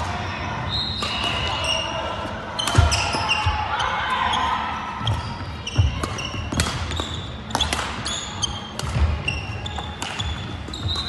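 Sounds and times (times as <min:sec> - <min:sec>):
court shoes squeaking: 0:00.0 - 0:11.0
racket hitting shuttlecock: 0:02.6 - 0:03.3, 0:05.8 - 0:10.6.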